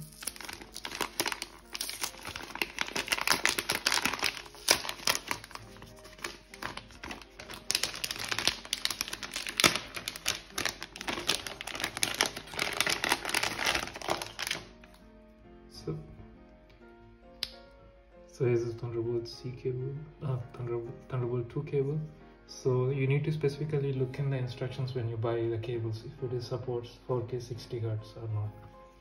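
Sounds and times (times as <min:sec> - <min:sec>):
plastic and paper packaging crinkling: 0:00.0 - 0:15.0.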